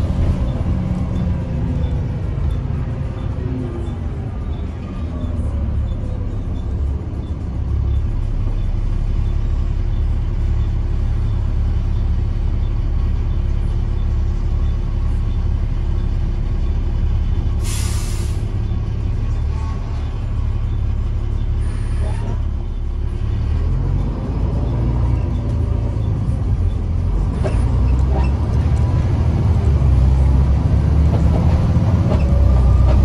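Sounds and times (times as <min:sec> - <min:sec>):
bus engine rumbling: 0:00.0 - 0:33.0
compressed air hiss: 0:17.6 - 0:18.4.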